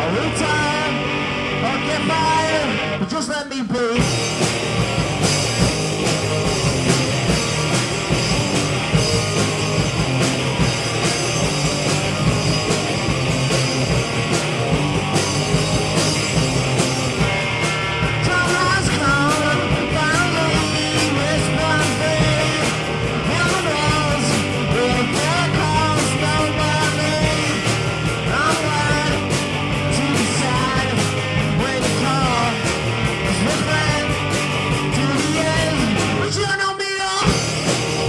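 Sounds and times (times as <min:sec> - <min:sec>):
person singing: 0:00.0 - 0:04.2, 0:18.2 - 0:37.4
live rock band: 0:00.0 - 0:38.0.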